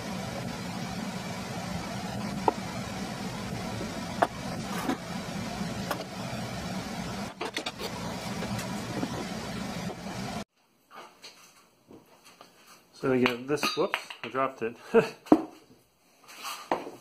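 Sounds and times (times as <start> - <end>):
steady hum: 0.0 - 10.4.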